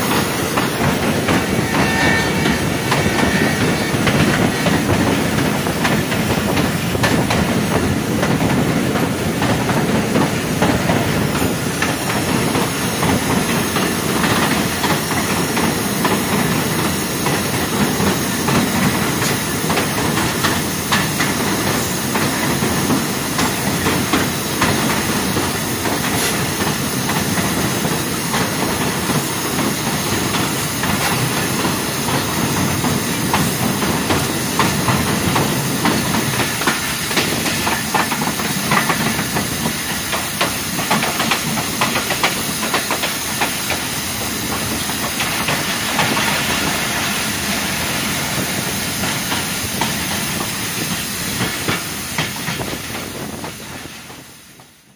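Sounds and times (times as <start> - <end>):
wind rushing over microphone: 0.0 - 20.8, 45.4 - 54.3
rail joint clicks: 0.0 - 54.8
train wheels rumbling on track: 0.0 - 54.9.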